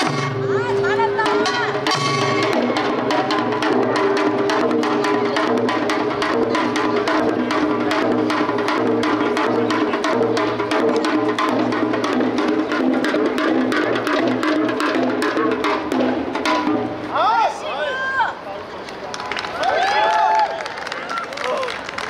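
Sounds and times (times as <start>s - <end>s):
fast traditional drumming: 0.0s - 17.3s.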